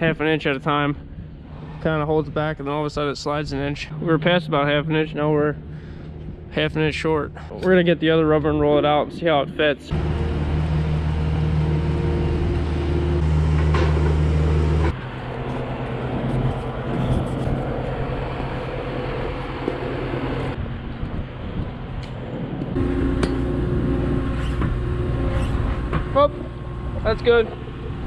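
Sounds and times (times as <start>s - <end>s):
tractor engine humming: 9.4s - 21.1s, 22.4s - 28.0s.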